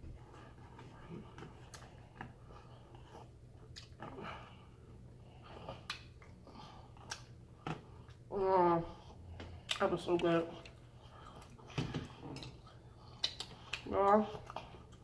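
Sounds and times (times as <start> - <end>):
close chewing: 1.4 - 4.2, 9.6 - 15.0.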